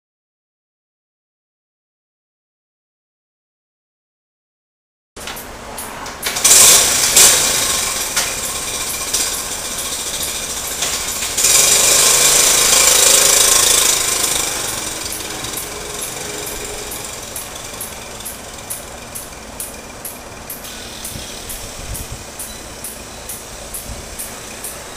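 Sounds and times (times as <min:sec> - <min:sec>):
motorbike engine revving: 0:05.2 - 0:24.9.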